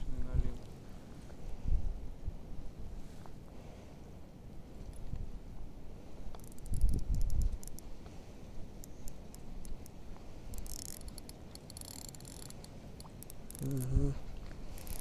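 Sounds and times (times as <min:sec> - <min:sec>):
wind and water rumble: 0:00.0 - 0:15.0
fishing reel ticking: 0:06.3 - 0:07.9, 0:08.8 - 0:14.1, 0:14.7 - 0:15.0.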